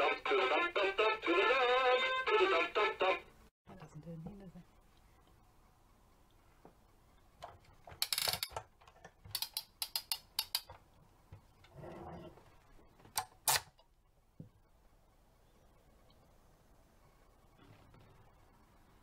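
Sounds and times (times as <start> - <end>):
plastic toy clicking: 9.3 - 10.7.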